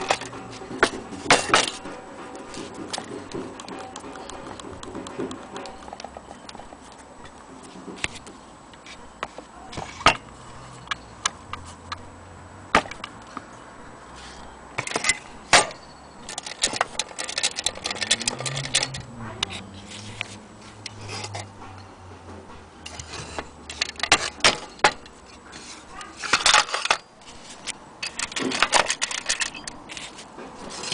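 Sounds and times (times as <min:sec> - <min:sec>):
hard objects clicking and knocking: 0:00.0 - 0:12.1, 0:12.7 - 0:13.6, 0:14.7 - 0:30.9
ticking: 0:16.2 - 0:21.5.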